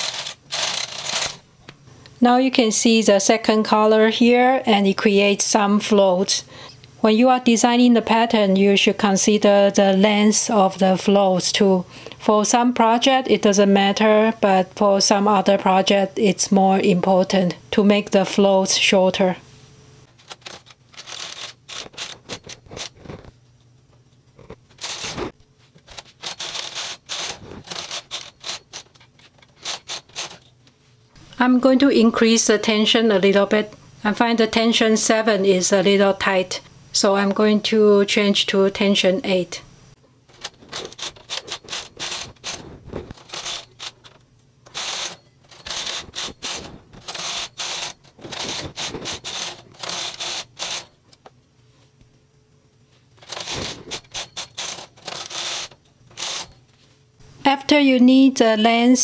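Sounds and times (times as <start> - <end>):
metallic scraping on knitting machine: 0.0 - 1.4, 24.8 - 30.4, 40.4 - 51.0, 53.2 - 56.6.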